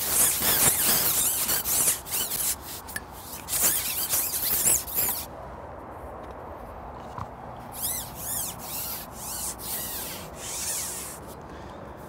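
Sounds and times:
fishing pole rubbing swishes: 0.0s - 5.3s, 7.7s - 11.4s.

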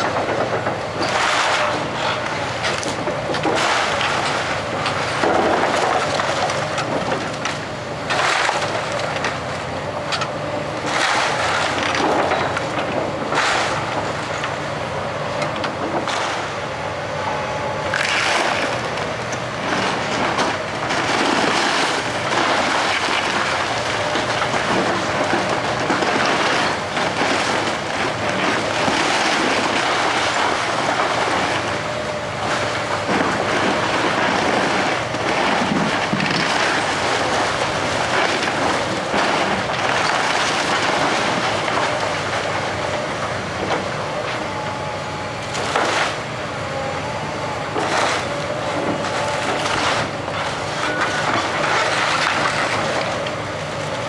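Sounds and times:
falling debris: 0.0s - 9.5s, 10.8s - 14.6s, 17.9s - 44.6s, 45.4s - 46.3s, 47.6s - 54.0s
excavator diesel engine running: 0.0s - 54.0s
timber cracking and crashing: 17.9s - 44.4s, 45.5s - 46.2s, 47.7s - 54.0s.

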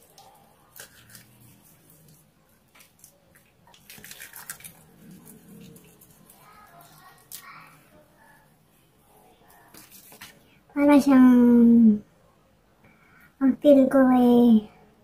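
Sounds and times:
wet squishing of soap lather: 0.0s - 8.6s, 9.4s - 10.6s.

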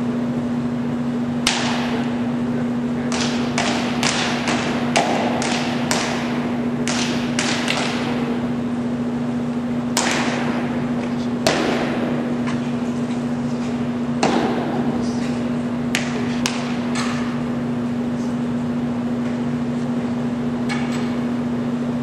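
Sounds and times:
steady low hum: 0.0s - 22.0s
sharp rifle drill strikes: 1.4s - 2.2s, 3.1s - 8.4s, 9.9s - 10.8s.

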